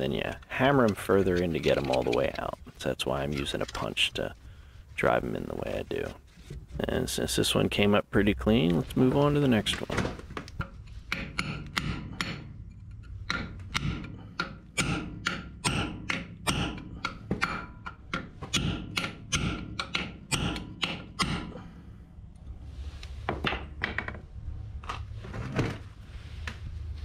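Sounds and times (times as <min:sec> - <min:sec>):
hammer striking a punch on metal: 0:11.1 - 0:12.5, 0:13.3 - 0:21.5.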